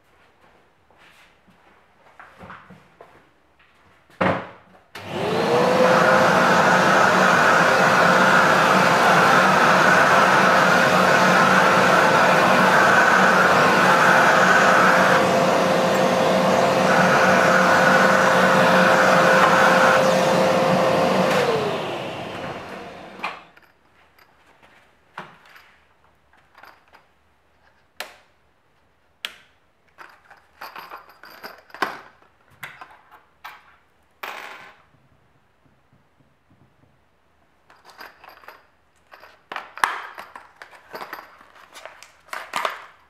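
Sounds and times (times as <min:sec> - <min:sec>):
vacuum cleaner running: 0:05.0 - 0:23.5
vacuum motor winding down: 0:05.0 - 0:23.5
metal washers clinking on bench: 0:25.4 - 0:28.0, 0:29.9 - 0:34.9, 0:37.6 - 0:42.7.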